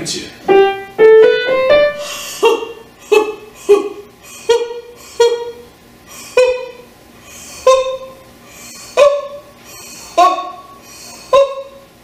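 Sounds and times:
woman singing staccato syllables: 10.2 - 11.9.

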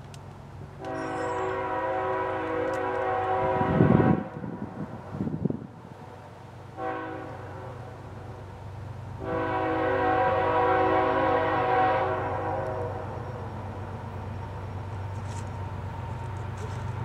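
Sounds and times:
low locomotive engine rumble: 0.0 - 17.0
locomotive air horn blasts: 0.8 - 4.6, 6.8 - 7.9, 9.2 - 13.2.

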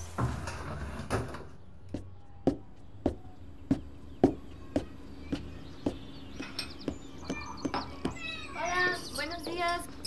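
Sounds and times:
footsteps on hard surface: 1.9 - 8.5.

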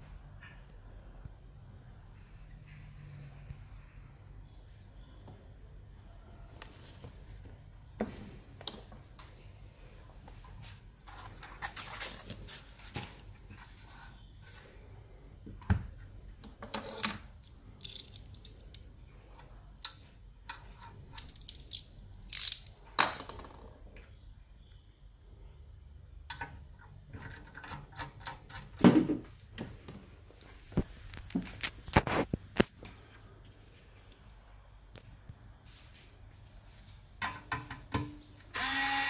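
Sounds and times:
steady low hum: 0.0 - 23.0, 23.7 - 38.6
metal casing clicks and scrapes: 16.6 - 22.8, 26.3 - 28.8.

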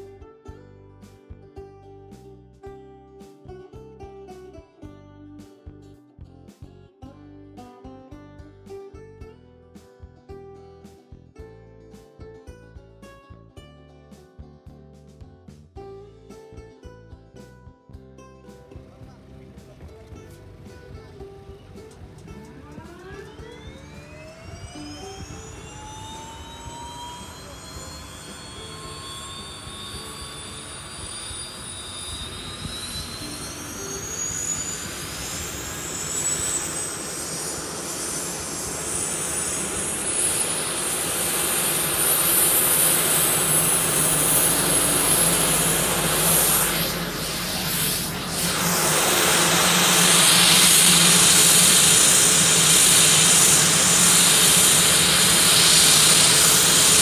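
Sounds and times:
turboprop engine starting up: 18.8 - 57.0.

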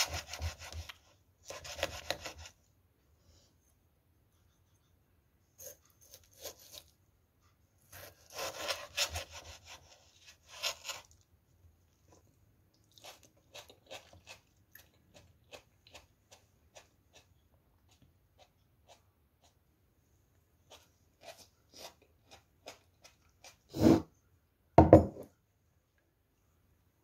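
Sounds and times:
knife slicing through tomato: 0.0 - 2.6, 5.6 - 6.9, 7.8 - 11.2.

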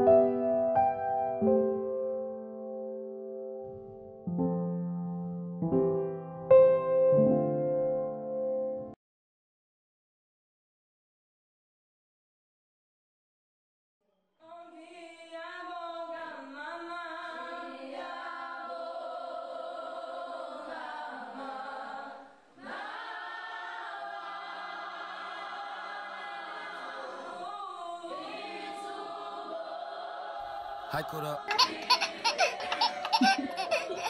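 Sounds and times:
choir singing held chords: 17.2 - 34.0.

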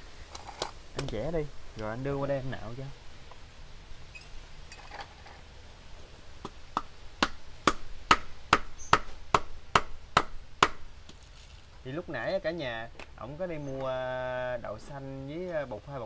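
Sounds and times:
blade chopping fruit: 6.4 - 10.8.

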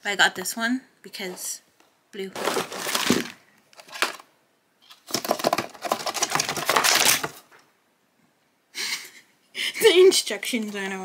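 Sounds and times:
bottles rattling in shaken box: 2.4 - 4.2, 5.0 - 7.4.

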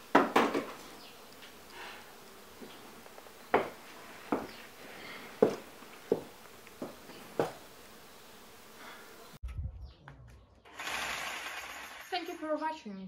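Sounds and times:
footsteps on a hard floor: 3.5 - 7.6.

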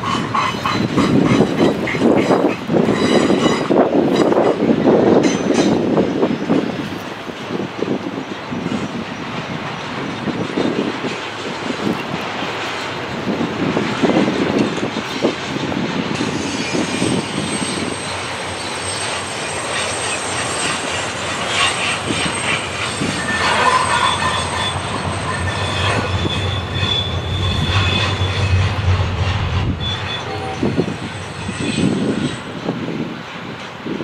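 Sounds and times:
high-pitched wheel squeal: 0.0 - 4.5, 16.2 - 32.7
freight train rolling past: 0.0 - 34.0
low drone: 17.9 - 32.5.

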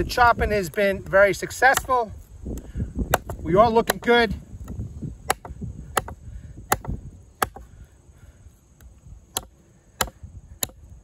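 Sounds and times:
knife chopping into log: 1.6 - 2.0, 3.0 - 7.7, 9.3 - 10.8.

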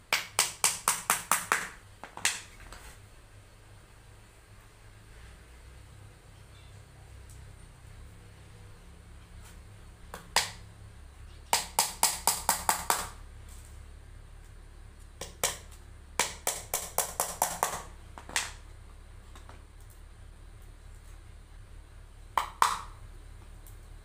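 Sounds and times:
small hammer tapping nails: 0.1 - 2.5, 11.5 - 13.2, 15.2 - 18.6, 22.4 - 23.0.

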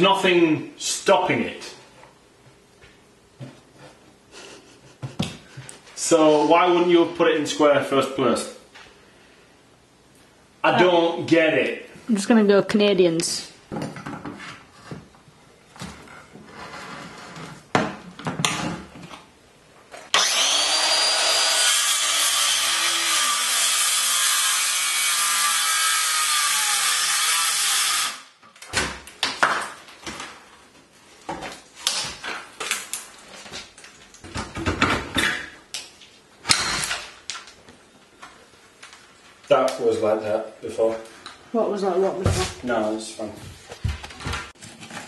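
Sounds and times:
power saw cutting wood: 20.1 - 28.3.

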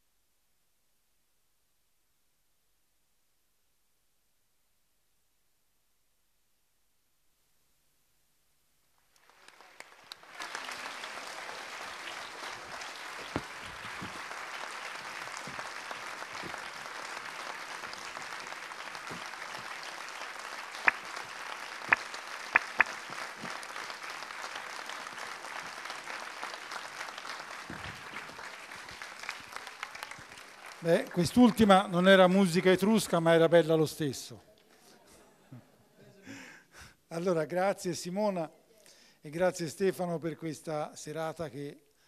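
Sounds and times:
audience applauding: 9.1 - 32.2
loud single claps: 9.2 - 31.1.

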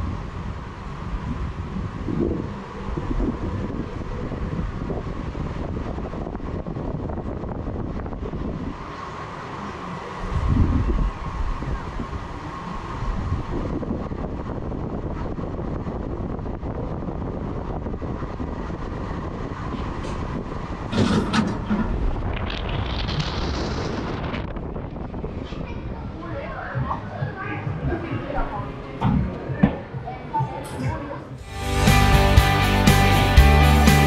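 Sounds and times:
wind buffeting microphone: 0.0 - 31.4
clatter: 20.9 - 24.5.

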